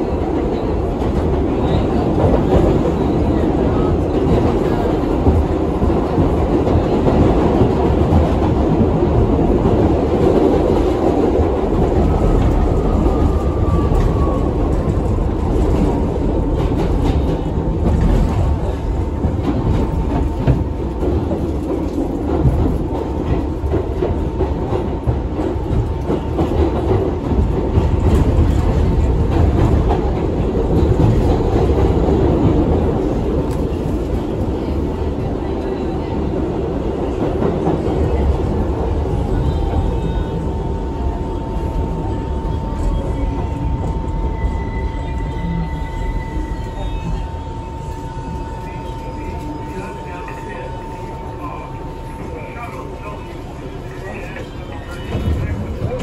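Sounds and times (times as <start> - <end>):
subway train wheels rumbling: 0.0 - 56.0
clickety-clack over rail joints: 0.1 - 41.0.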